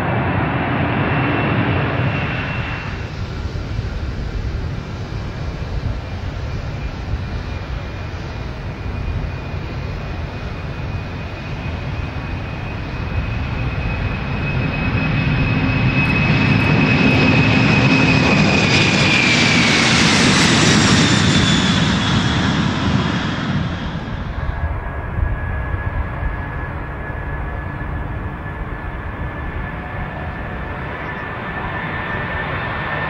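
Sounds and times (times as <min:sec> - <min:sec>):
jet engine roar with whine: 0:00.0 - 0:33.0.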